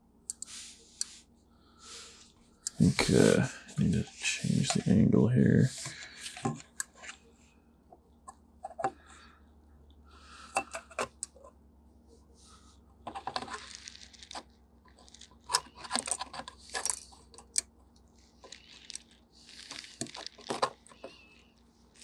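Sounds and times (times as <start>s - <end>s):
fingers clicking and scraping phone parts: 8.3s - 9.0s, 10.5s - 11.5s, 13.1s - 17.7s, 18.4s - 22.0s.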